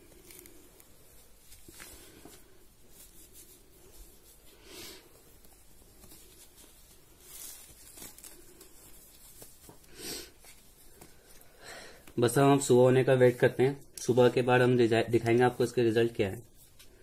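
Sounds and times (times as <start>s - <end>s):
soft brushing swishes: 0.0s - 11.4s
hands rubbing tape: 0.0s - 12.2s.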